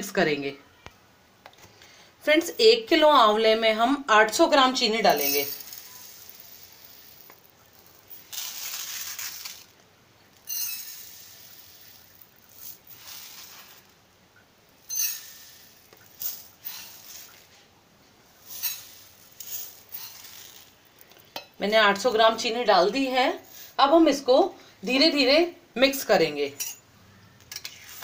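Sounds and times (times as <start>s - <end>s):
sugar pouring onto steel plate: 5.0s - 9.8s, 10.4s - 14.0s, 14.8s - 17.6s, 18.4s - 22.1s.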